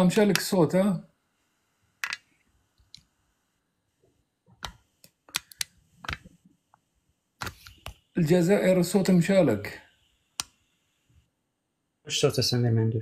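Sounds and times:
phone handling clicks and taps: 4.6 - 6.4.

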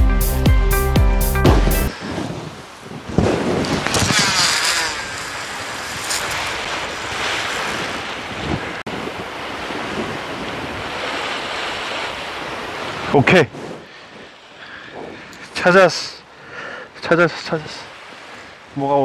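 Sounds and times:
wind buffeting microphone: 1.9 - 15.7
surf against rocks: 1.9 - 19.0
fishing reel whirr and swish: 3.3 - 8.4.

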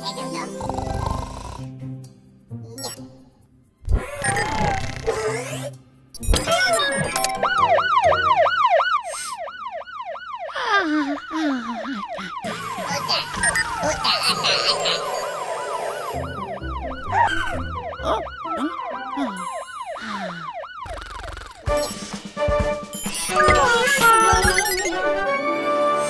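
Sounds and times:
cartoon alarm siren yelping: 6.4 - 21.7, 23.2 - 25.1.

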